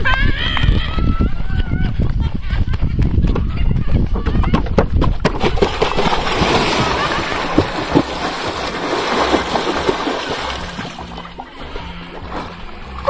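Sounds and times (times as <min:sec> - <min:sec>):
big splash into water: 0:05.4 - 0:11.3
water sloshing: 0:05.4 - 0:13.0.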